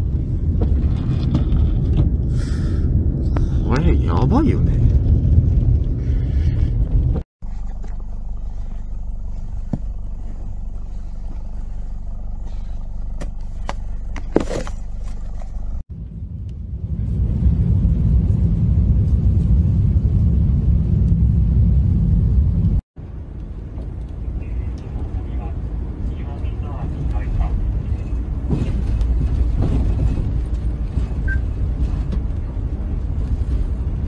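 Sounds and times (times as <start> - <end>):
wind buffeting microphone: 0.0 - 7.3.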